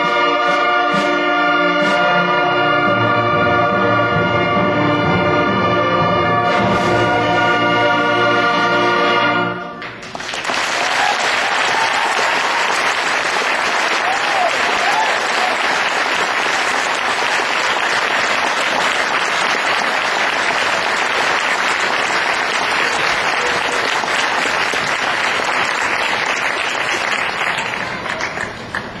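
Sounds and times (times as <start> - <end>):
audience applause: 9.9 - 29.0.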